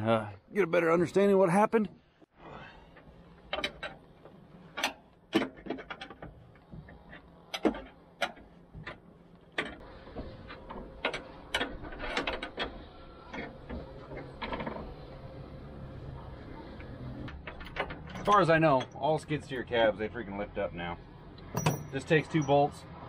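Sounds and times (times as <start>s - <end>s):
wrench clinking on bolts: 17.5s - 19.1s, 21.4s - 22.7s.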